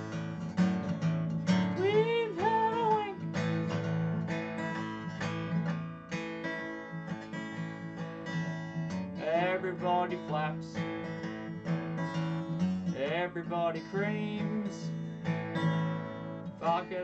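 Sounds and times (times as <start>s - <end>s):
acoustic guitar strumming chords: 0.0s - 17.0s
person singing: 1.7s - 3.4s, 9.2s - 10.8s, 13.0s - 15.0s, 16.6s - 17.0s.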